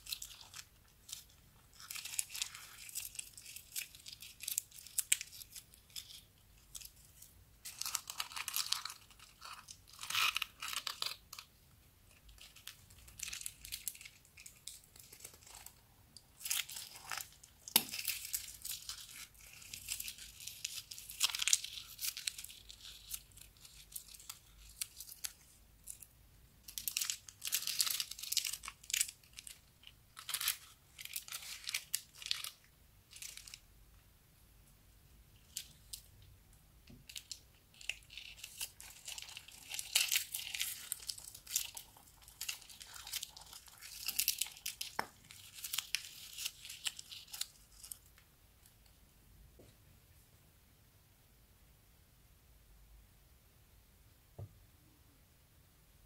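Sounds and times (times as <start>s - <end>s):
plastic piping bags crinkling: 0.0s - 11.5s, 12.1s - 33.6s, 37.0s - 48.2s
sticky glue crackles: 12.1s - 26.1s, 36.8s - 48.2s.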